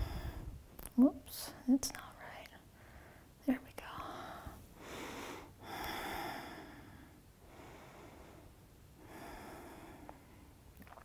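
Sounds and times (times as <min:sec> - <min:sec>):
woman breathing deeply: 0:00.0 - 0:00.6, 0:02.7 - 0:03.4, 0:04.2 - 0:10.6.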